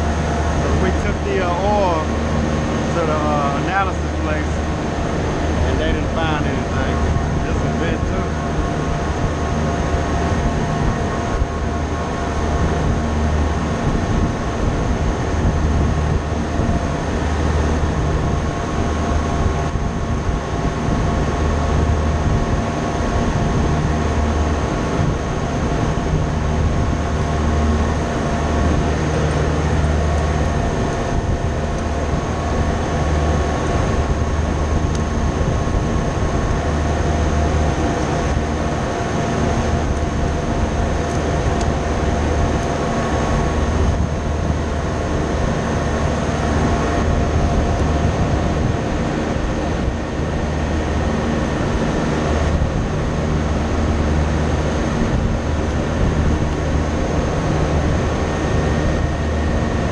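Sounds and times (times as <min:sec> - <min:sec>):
machinery drone: 0:00.0 - 0:59.9.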